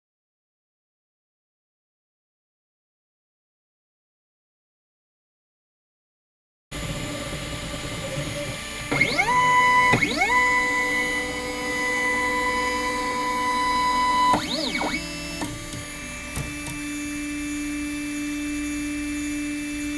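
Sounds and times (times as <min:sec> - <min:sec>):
stepper motors whining: 0:06.8 - 0:19.9.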